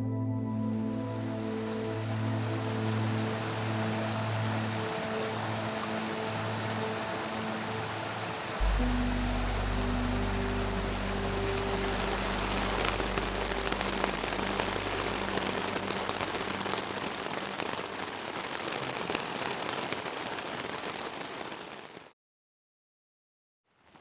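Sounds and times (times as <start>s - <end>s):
soft music: 0.0s - 18.0s
rain pattering: 1.3s - 22.1s.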